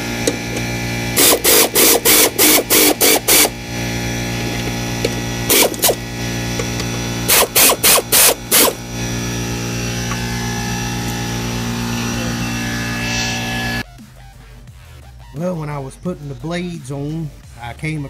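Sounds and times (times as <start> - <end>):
power ratchet bursts: 0.0 - 13.8
steady hum: 0.0 - 13.8.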